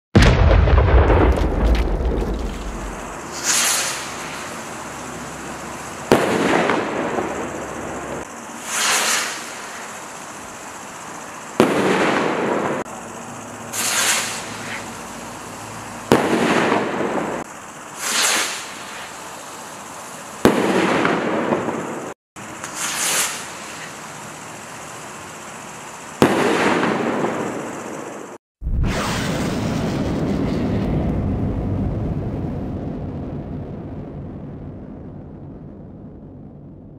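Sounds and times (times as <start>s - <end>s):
firework bang: 0.2s - 4.7s, 6.0s - 7.5s, 11.6s - 12.8s, 13.7s - 14.8s, 16.1s - 19.0s, 20.4s - 21.9s, 26.2s - 27.7s, 28.6s - 36.9s
firework rocket whoosh: 0.7s - 5.4s, 8.6s - 10.2s, 13.7s - 15.0s, 16.1s - 19.2s, 20.4s - 24.0s, 28.6s - 31.2s.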